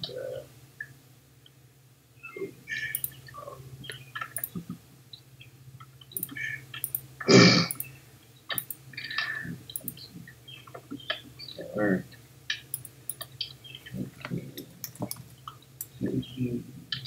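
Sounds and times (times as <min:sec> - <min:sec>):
keyboard and mouse clicks: 0:02.9 - 0:03.2, 0:03.9 - 0:04.6, 0:06.1 - 0:07.0, 0:07.7 - 0:07.9, 0:08.5 - 0:08.8, 0:09.7 - 0:10.0, 0:12.5 - 0:13.4, 0:14.2 - 0:16.0.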